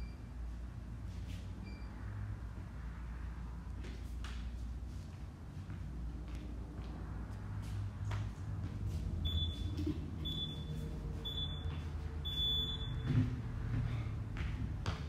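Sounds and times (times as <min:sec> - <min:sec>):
timer beeps: 0:00.0 - 0:00.4, 0:01.6 - 0:02.0, 0:09.2 - 0:13.1.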